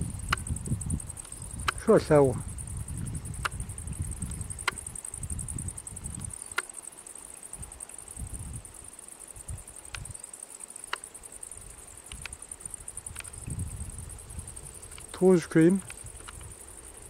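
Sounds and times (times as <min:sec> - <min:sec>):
microphone rumbles: 0:00.0 - 0:06.4, 0:12.9 - 0:14.9
insects chirring: 0:00.0 - 0:17.0
faint sharp clicks: 0:01.2 - 0:01.8, 0:03.4 - 0:04.9, 0:06.5 - 0:06.8, 0:09.8 - 0:10.2, 0:10.8 - 0:11.1, 0:12.0 - 0:12.4, 0:13.1 - 0:13.4, 0:14.9 - 0:15.2, 0:15.8 - 0:16.6.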